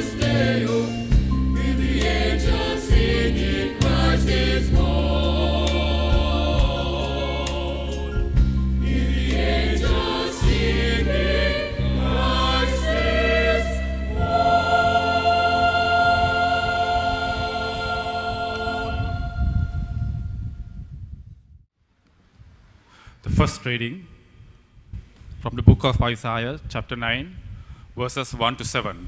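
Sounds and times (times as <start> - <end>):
electronic keyboard with bass: 0.0 - 20.2
mixed choir singing: 0.0 - 20.3.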